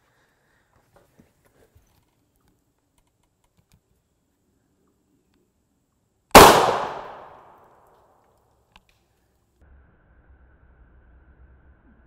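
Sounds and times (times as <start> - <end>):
rifle shot with echo: 6.4 - 7.8.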